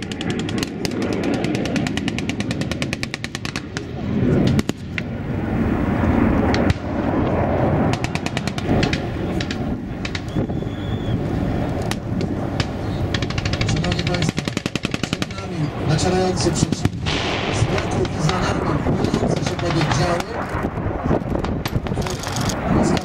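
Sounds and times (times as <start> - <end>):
automatic gunfire: 0.0 - 3.7, 13.1 - 15.5
steady low rumble: 0.0 - 23.0
single gunshots: 16.6 - 20.4.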